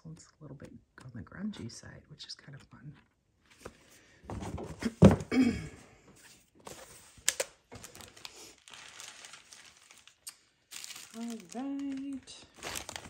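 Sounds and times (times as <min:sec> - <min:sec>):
paper rustling: 0:06.3 - 0:13.0.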